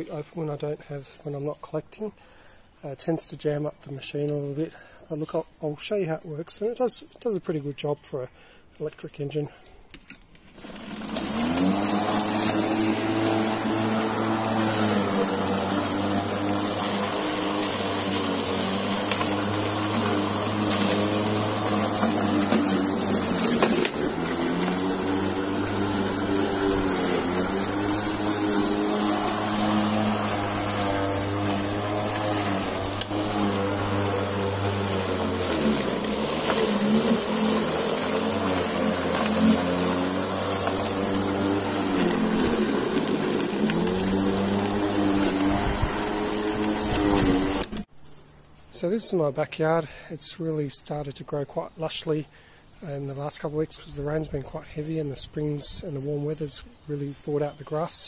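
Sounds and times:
electric lawn mower cutting grass: 10.5 - 47.9.

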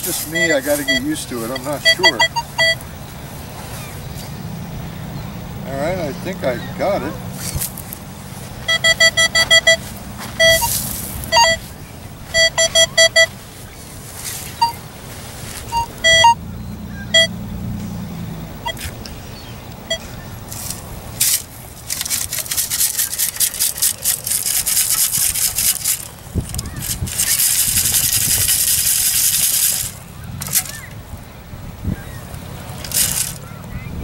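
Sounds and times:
sand shaken through a scoop: 0.0 - 2.2, 9.8 - 11.7, 20.5 - 30.9, 32.8 - 33.5
metal detector beeping: 0.0 - 2.8, 8.6 - 11.7, 12.3 - 13.4, 14.6 - 14.8, 15.6 - 16.4, 17.0 - 17.4, 18.6 - 18.9, 19.8 - 20.2.

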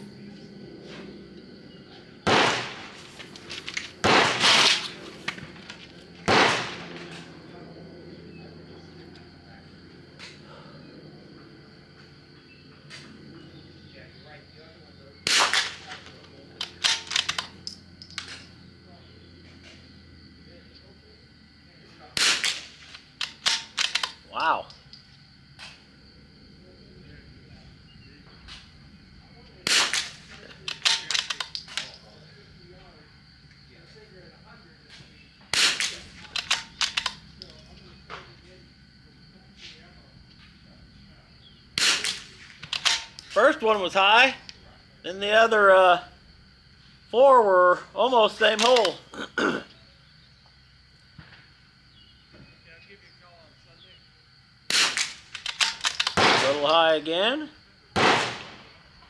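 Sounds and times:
rifle shots: 2.2 - 3.2, 3.9 - 5.5, 6.2 - 7.3, 15.2 - 17.5, 22.2 - 24.1, 29.6 - 31.4, 35.5 - 37.2, 41.8 - 43.1, 54.7 - 56.8, 58.0 - 58.8
faint rifle clicks: 22.2 - 24.2, 29.7 - 32.0, 35.5 - 37.6, 41.8 - 43.4, 54.7 - 56.3
rifle bolt clicks: 35.7 - 37.2.

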